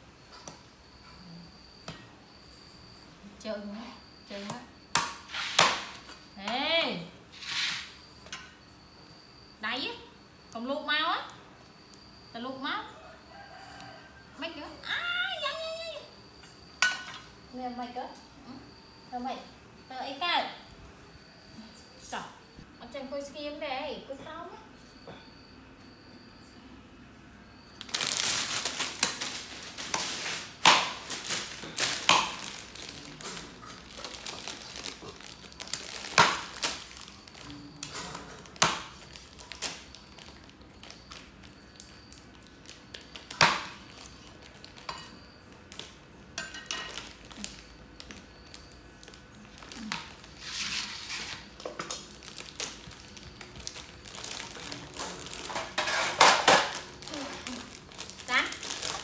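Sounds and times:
plastic snack bag crinkling: 0:27.8 - 0:37.6, 0:38.4 - 0:44.9, 0:46.9 - 0:50.6, 0:51.4 - 0:59.0.

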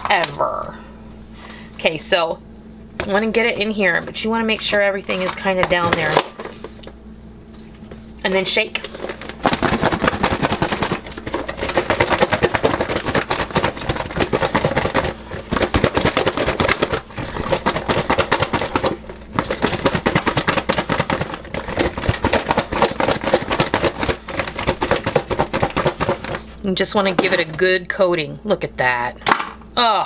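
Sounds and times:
food rattling in plastic container: 0:08.7 - 0:27.6.

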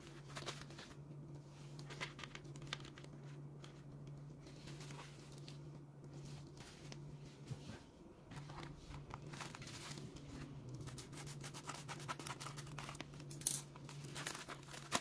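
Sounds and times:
steady low hum: 0:00.0 - 0:15.0
plastic mailer crinkling: 0:08.4 - 0:15.0.

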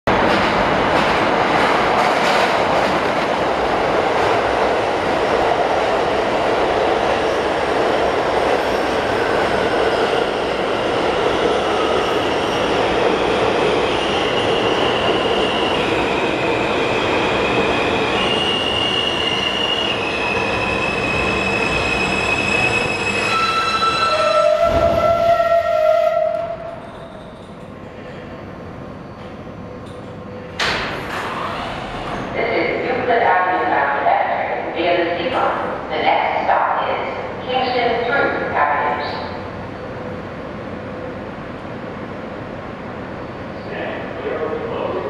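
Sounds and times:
train wheels rumbling on rail: 0:00.1 - 0:33.3
high whines of slowing train: 0:00.1 - 0:45.0.

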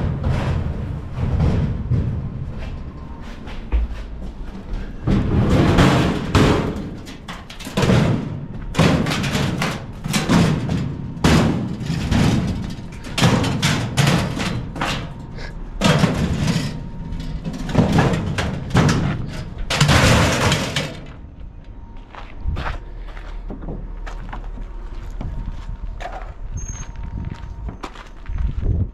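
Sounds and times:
heavy metal clangs and clatters: 0:00.0 - 0:21.4.

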